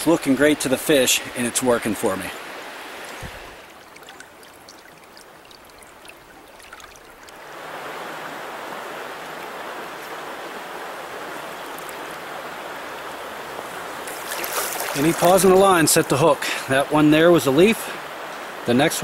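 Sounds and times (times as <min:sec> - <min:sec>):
stream water flowing: 0:00.0 - 0:19.0
faint ticks: 0:03.0 - 0:07.4, 0:11.6 - 0:12.2.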